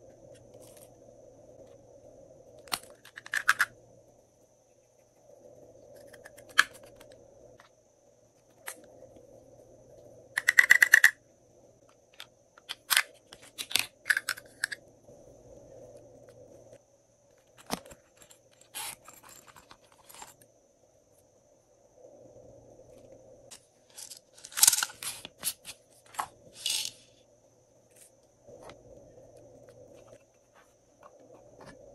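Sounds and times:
glitter rattling in container: 26.5s - 27.0s.

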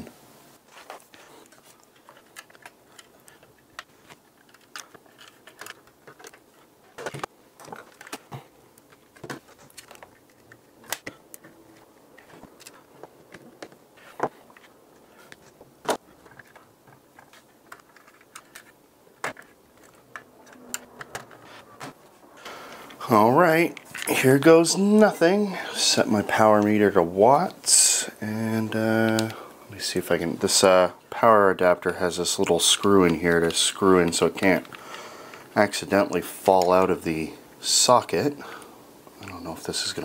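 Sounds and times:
hands handling plastic case: 0.7s - 25.1s.

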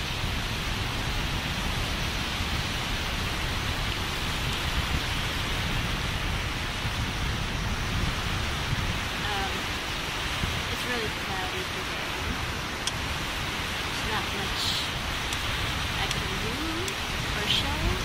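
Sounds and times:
surf washing onto shore: 0.0s - 18.0s
wind buffeting microphone: 0.0s - 18.0s.

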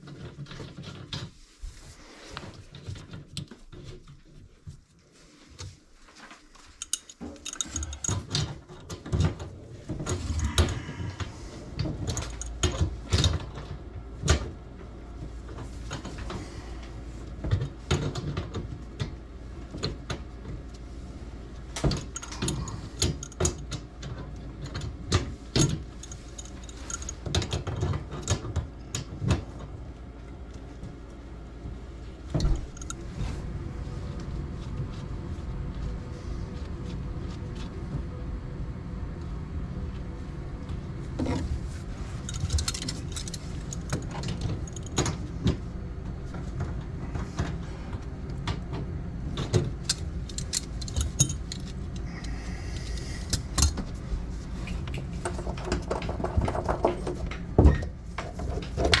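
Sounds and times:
steady low hum: 0.0s - 59.0s.

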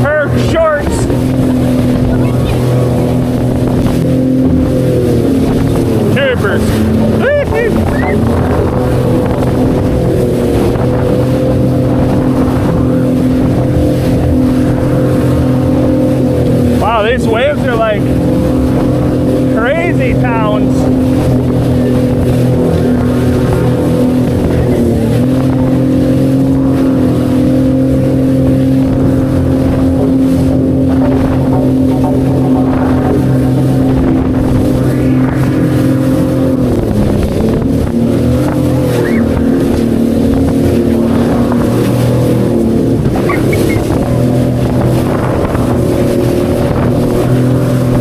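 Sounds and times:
water rushing under hull: 0.0s - 48.0s
watercraft engine running: 0.0s - 48.0s.

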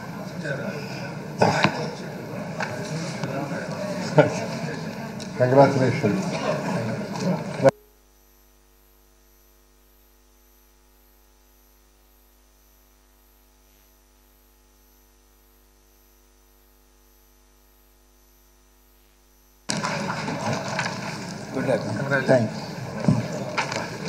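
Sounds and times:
voices: 0.0s - 7.7s, 19.7s - 24.0s
faint mains hum: 0.0s - 24.0s.

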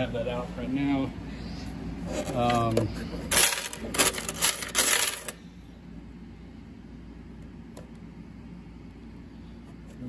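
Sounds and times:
coins clinking in metal bucket: 3.3s - 5.4s.

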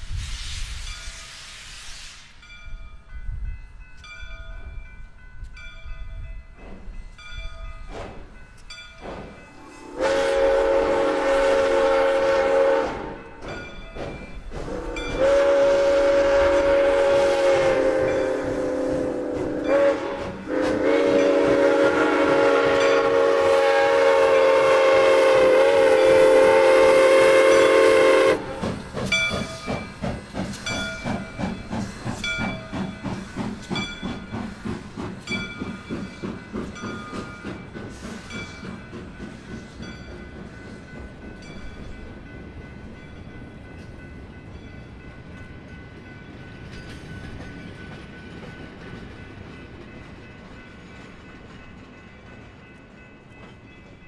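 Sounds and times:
steam locomotive exhaust chuffing: 0.0s - 2.8s, 6.5s - 54.0s
steam locomotive chime whistle: 8.7s - 42.2s.

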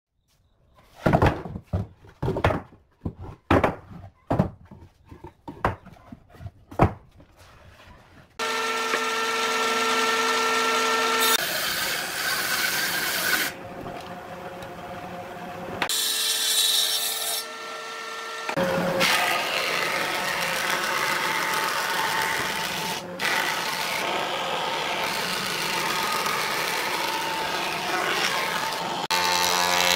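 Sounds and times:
wooden boards knocking: 1.0s - 6.1s, 6.7s - 7.2s
cutter head rasping wood: 8.4s - 13.6s, 15.9s - 29.9s
electric planer whining: 8.4s - 29.9s.

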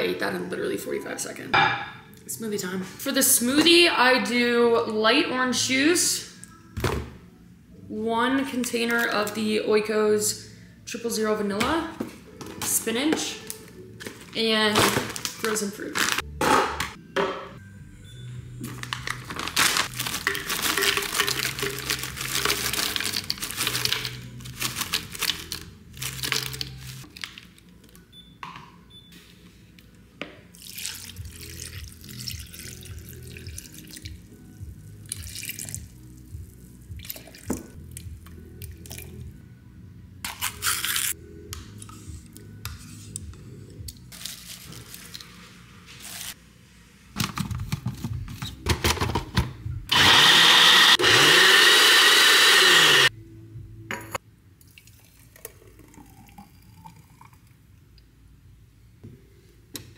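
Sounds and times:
background music: 0.0s - 57.3s
juice pouring and splashing: 19.8s - 25.4s, 30.5s - 34.3s, 35.0s - 36.0s, 36.9s - 38.0s, 54.6s - 57.6s.

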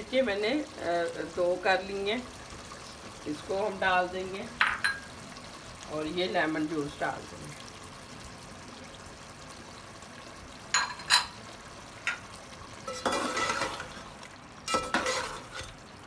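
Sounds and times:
metal spatula scraping pot: 12.9s - 14.0s, 14.7s - 15.8s.

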